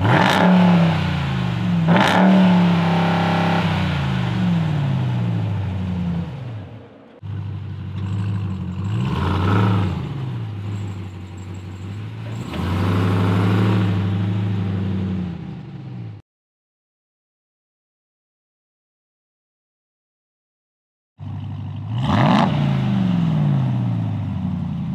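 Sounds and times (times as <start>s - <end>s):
truck engine revving and idling: 0.0s - 16.2s, 21.2s - 24.9s.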